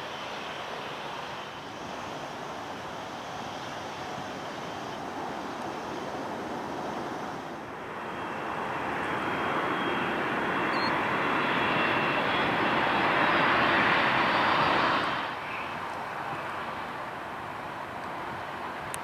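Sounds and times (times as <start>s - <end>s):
jet engines at high power: 0.0s - 19.0s
faint fan whistle: 9.2s - 13.6s.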